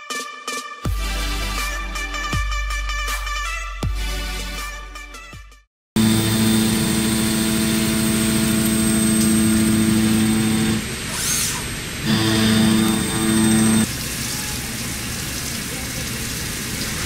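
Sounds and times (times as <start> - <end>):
machine motor hum: 6.0 - 14.0.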